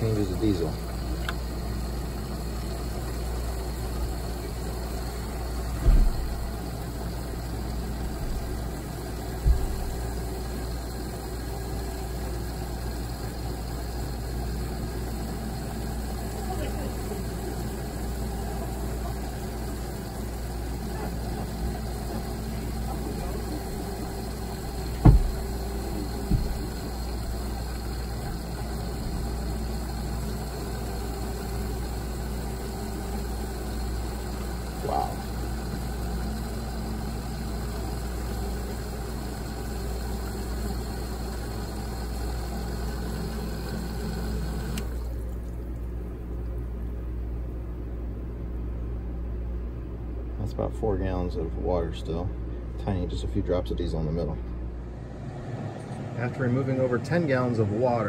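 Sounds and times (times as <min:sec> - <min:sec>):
water churning into bucket: 0:00.0 - 0:46.1
pump running: 0:00.0 - 0:48.2, 0:50.4 - 0:58.0
sharp knock: 0:25.0 - 0:25.4.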